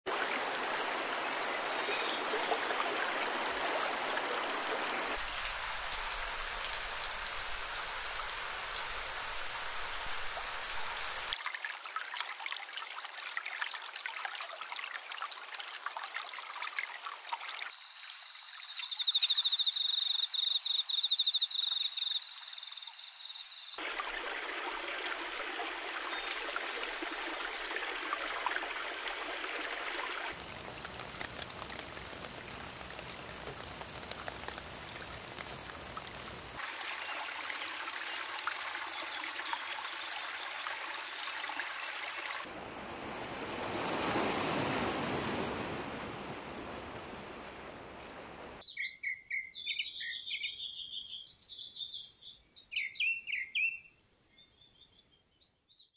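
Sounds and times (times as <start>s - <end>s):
stream water running over rocks: 0.1s - 19.0s, 21.9s - 42.5s.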